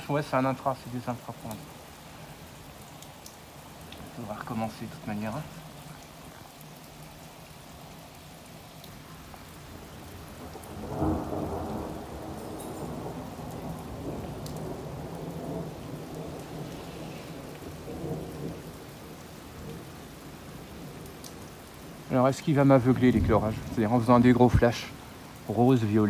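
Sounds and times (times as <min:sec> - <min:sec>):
steady rain: 0:00.0 - 0:26.0
rolling thunder: 0:10.3 - 0:19.9, 0:22.9 - 0:24.8.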